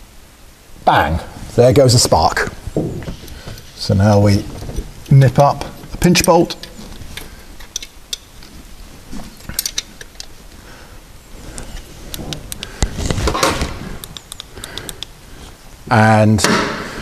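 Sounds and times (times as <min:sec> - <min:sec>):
spanner clicking on metal: 0:07.6 - 0:08.3, 0:14.0 - 0:15.2.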